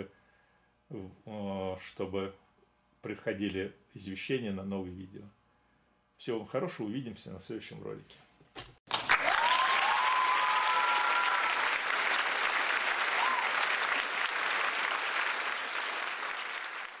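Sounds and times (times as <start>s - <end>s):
crowd applause: 8.9s - 17.0s.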